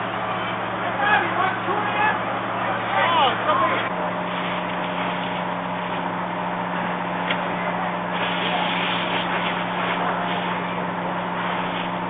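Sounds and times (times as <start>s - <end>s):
fire engine pump droning: 0.0s - 12.0s
hose stream hissing: 8.0s - 12.0s.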